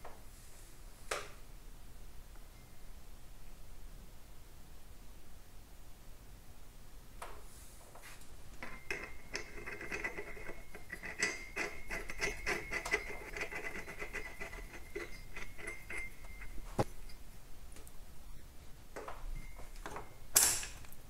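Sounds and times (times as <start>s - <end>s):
small metal clicks and scrapes: 8.6s - 17.2s.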